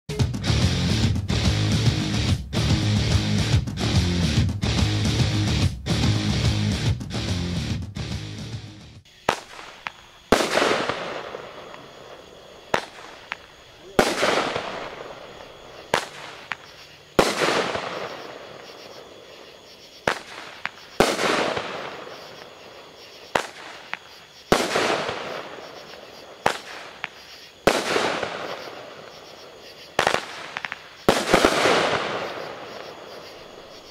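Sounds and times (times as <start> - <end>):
firework shots cracking: 9.1 - 19.4, 20.0 - 33.7
firework bangs: 9.1 - 33.9.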